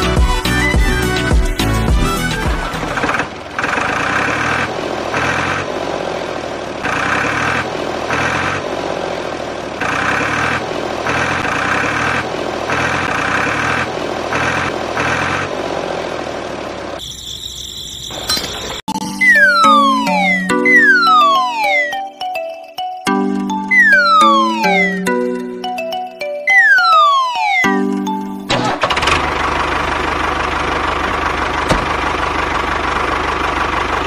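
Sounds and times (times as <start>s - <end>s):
tractor engine running: 0.0s - 22.0s, 27.8s - 34.0s
falling whistle-like tones: 17.0s - 22.0s, 23.7s - 25.1s, 26.4s - 27.8s.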